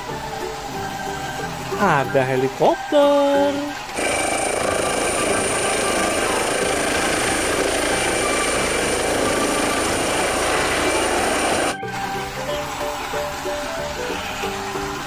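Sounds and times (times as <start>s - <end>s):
high-pitched whine: 3.9s - 11.8s
helicopter rotor and engine: 4.0s - 11.8s.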